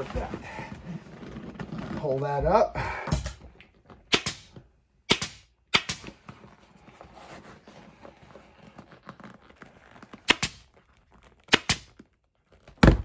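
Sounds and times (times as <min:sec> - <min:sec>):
vinyl rustling: 0:00.0 - 0:02.7, 0:06.1 - 0:13.0
pneumatic stapler firing: 0:04.1 - 0:04.5, 0:05.1 - 0:06.1, 0:11.6 - 0:11.9.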